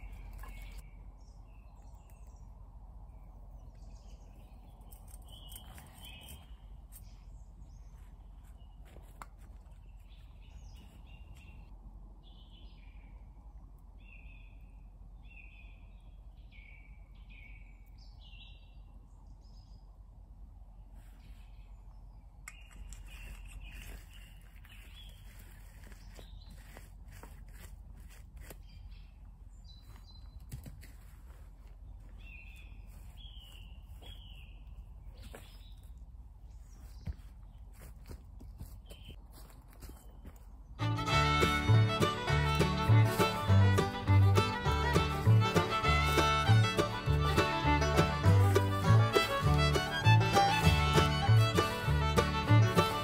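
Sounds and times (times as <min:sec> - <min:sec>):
birds chirping: 0:00.0 - 0:20.0, 0:20.8 - 0:53.0
faint low hum: 0:00.0 - 0:52.6.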